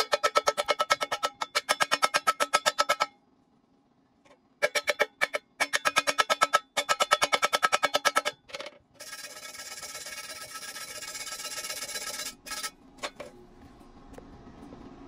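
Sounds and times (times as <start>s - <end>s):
angle grinder grinding: 9.0s - 12.8s.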